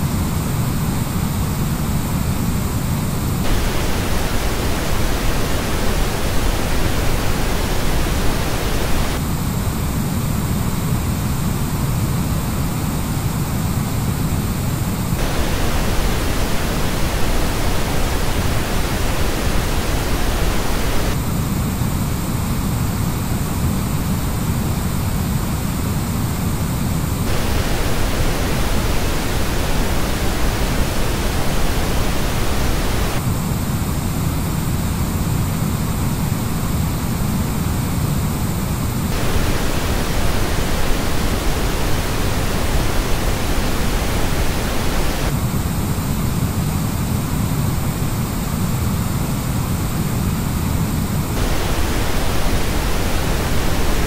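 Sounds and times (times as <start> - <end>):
pink noise test signal: 3.2 - 9.2, 14.8 - 21.2, 27.2 - 33.3, 39.0 - 45.5, 51.2 - 54.0.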